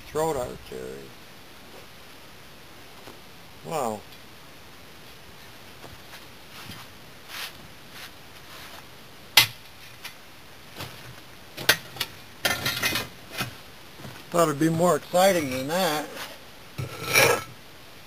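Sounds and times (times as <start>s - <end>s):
gravel and brick clattering: 10.8s - 17.6s.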